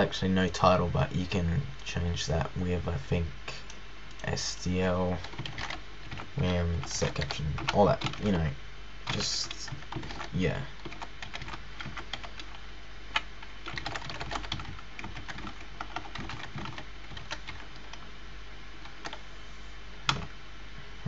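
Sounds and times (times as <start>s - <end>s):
typing on computer keyboard: 5.2s - 8.4s, 9.1s - 12.6s, 13.2s - 18.0s.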